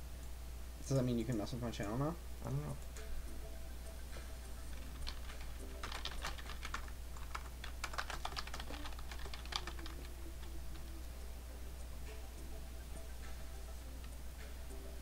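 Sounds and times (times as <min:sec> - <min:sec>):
keyboard typing: 0:04.7 - 0:11.0.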